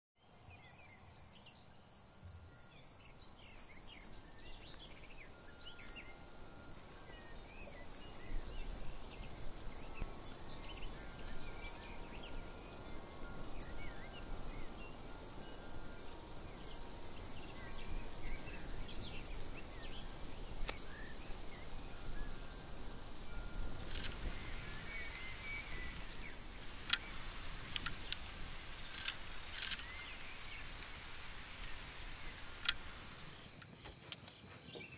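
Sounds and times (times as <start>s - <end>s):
crickets trilling: 1.2s - 34.9s
higher insect trill: 1.2s - 34.9s
bird chirps: 2.3s - 34.9s
sharp clicks: 32.6s - 33.0s.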